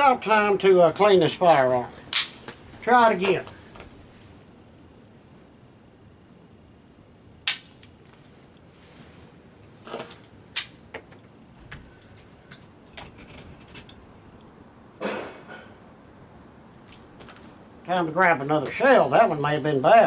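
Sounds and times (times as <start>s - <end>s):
pistol hammer snapping: 2.1s - 2.4s, 7.4s - 8.0s.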